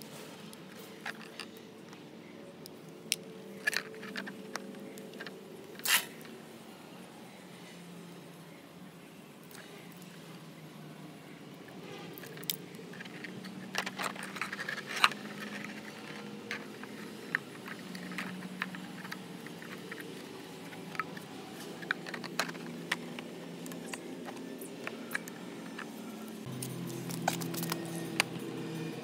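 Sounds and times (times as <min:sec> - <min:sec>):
plastic parts clicking and knocking: 0:00.8 - 0:02.0, 0:03.1 - 0:05.9, 0:12.2 - 0:26.3.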